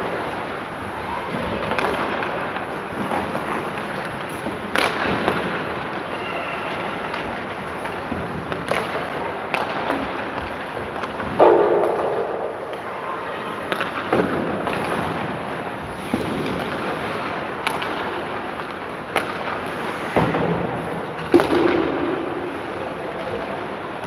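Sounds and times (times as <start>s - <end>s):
skates scraping ice: 0.0s - 24.0s
sticks and puck knocking: 16.0s - 22.2s.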